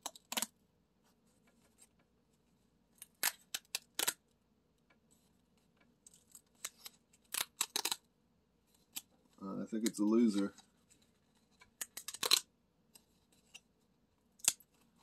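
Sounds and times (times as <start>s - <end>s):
paper tabs tearing open: 3.0s - 4.2s, 6.4s - 8.0s, 11.8s - 12.5s.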